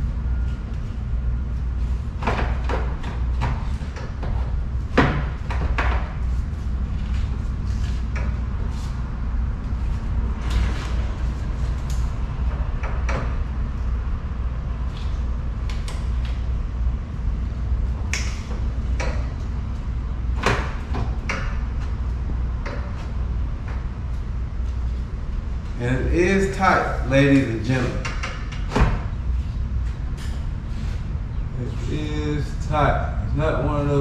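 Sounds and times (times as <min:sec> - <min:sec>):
steady low hum: 0:00.0 - 0:34.0
fan assembly knocking and scraping: 0:01.8 - 0:09.0.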